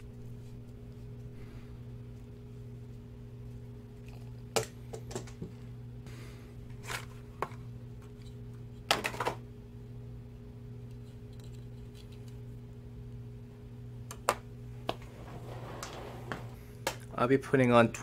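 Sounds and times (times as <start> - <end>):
low hum: 0.0 - 8.8.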